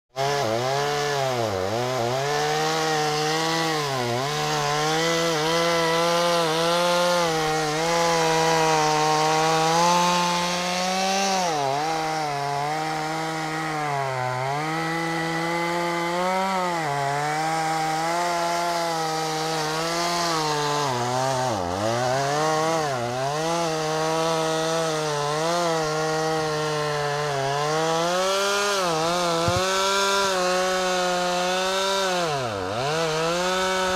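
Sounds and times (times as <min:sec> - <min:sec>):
chainsaw cutting wood: 0:00.1 - 0:33.9.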